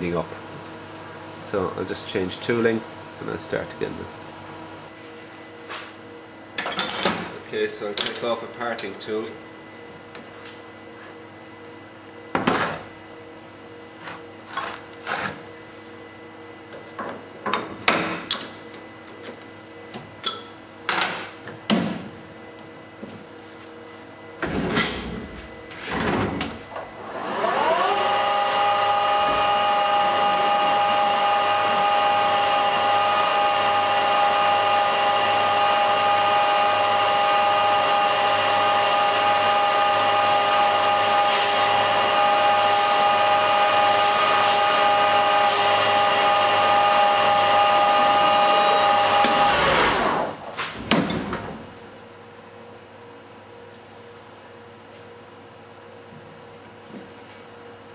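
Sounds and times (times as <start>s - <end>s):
lathe spindle whine: 27.0s - 50.4s.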